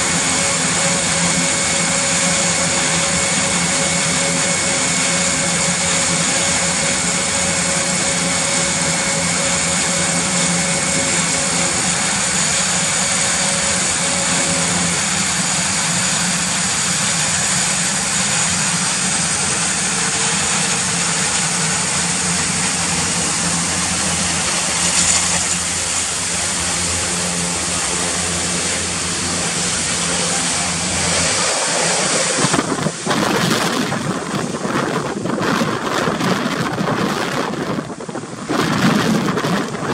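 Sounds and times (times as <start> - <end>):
turboprop engines running: 0.0 - 39.9
wind buffeting microphone: 27.8 - 39.9.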